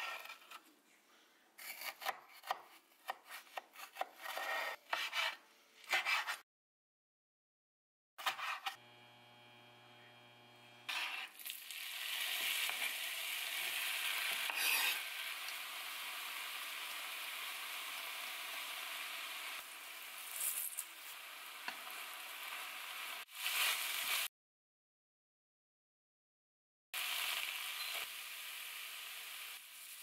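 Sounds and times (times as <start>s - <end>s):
faint hum: 8.8s - 10.9s
food sizzling in a frying pan: 10.9s - 24.3s, 27.0s - 30.0s.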